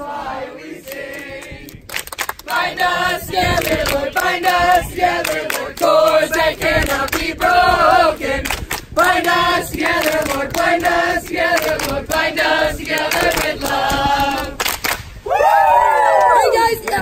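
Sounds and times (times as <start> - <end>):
group singing worship song: 0.0 - 14.6.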